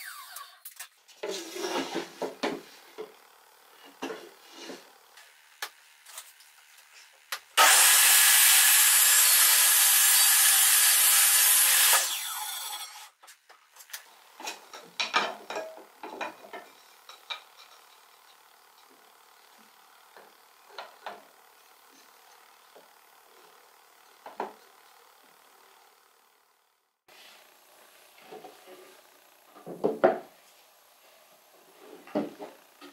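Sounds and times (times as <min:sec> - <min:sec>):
table saw cutting wood: 0:00.0 - 0:00.6, 0:03.7 - 0:13.2.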